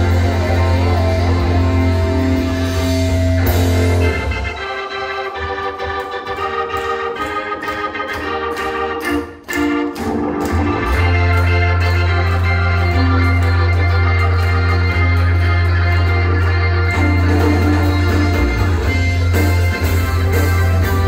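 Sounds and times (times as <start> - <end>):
heavy bass: 0.0 - 4.8, 10.0 - 21.0
instrumental rock band: 0.0 - 21.0
organ chords: 0.0 - 21.0.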